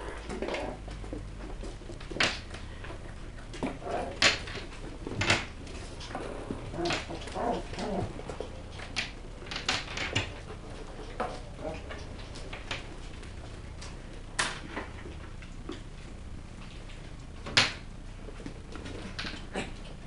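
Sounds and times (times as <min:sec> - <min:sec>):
paws clicking on wooden floor: 0:00.0 - 0:20.0
puppy vocalizing: 0:06.1 - 0:08.4.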